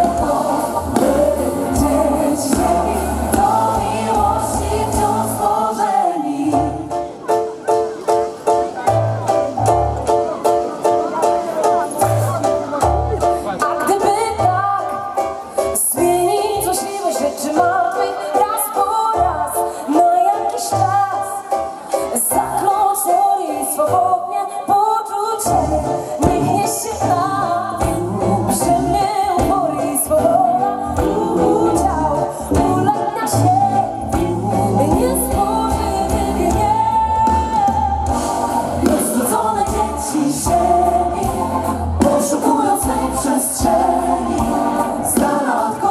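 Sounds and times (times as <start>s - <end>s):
bass: 0.0s - 7.1s, 8.9s - 10.3s, 12.0s - 14.8s, 25.5s - 45.9s
woman singing lead: 0.0s - 7.3s, 13.5s - 45.9s
drums: 0.0s - 24.1s, 24.7s - 45.9s
guitar: 25.5s - 45.9s.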